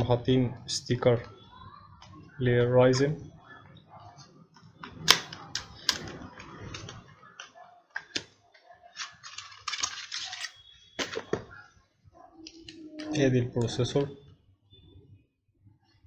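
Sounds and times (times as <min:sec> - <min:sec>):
plastic rustling: 0:08.9 - 0:11.4.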